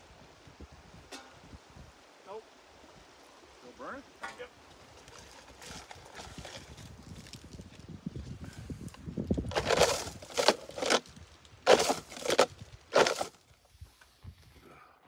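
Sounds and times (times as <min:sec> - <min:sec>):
crunching rustling noises: 0:04.3 - 0:14.5.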